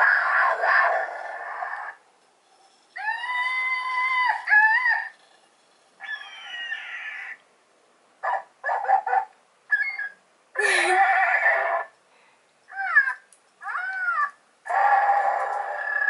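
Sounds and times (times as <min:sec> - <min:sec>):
toy ball animal calls: 0:12.7 - 0:16.0.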